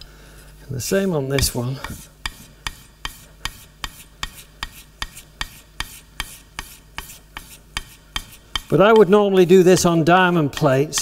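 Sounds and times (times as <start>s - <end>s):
chisel rubbing on wet abrasive paper: 1.4s - 11.0s.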